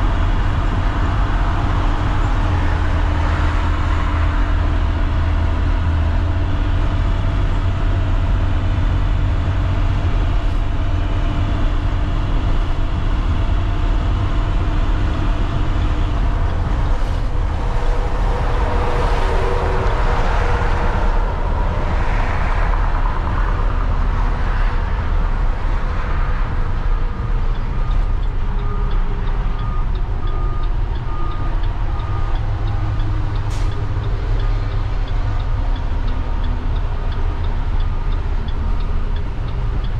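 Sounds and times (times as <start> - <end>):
diesel bus engine cruising: 0.0 - 39.9
road noise: 0.0 - 39.9
turn signal ticking: 25.6 - 39.9.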